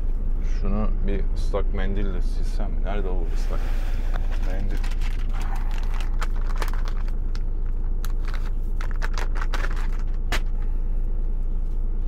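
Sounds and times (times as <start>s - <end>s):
truck engine idling hum: 0.0s - 12.0s
rustling of wet-wipe pack: 4.2s - 10.7s.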